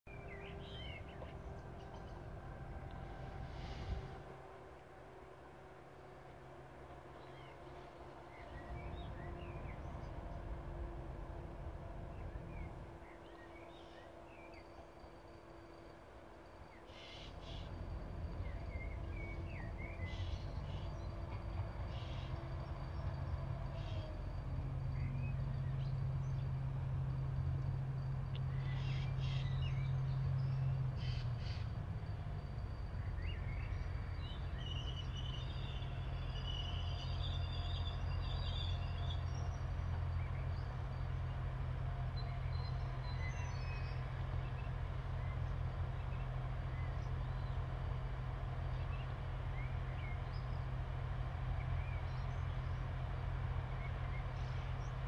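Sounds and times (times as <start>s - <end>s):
diesel train engine drone: 0.1s - 55.0s
birds calling: 16.8s - 24.2s, 28.4s - 31.9s.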